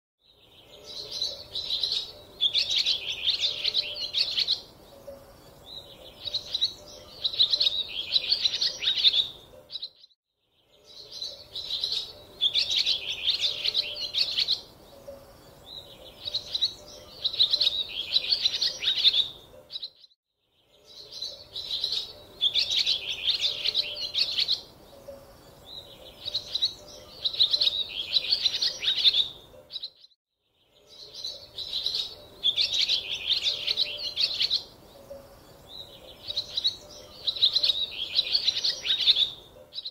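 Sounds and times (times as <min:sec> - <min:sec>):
small birds twittering: 0:00.2 - 0:39.9.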